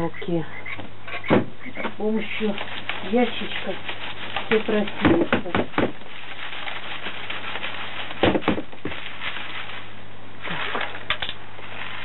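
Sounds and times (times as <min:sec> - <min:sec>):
sand rustling through mesh: 0:02.0 - 0:12.0
plastic crate knocking: 0:04.5 - 0:06.0, 0:08.2 - 0:09.0.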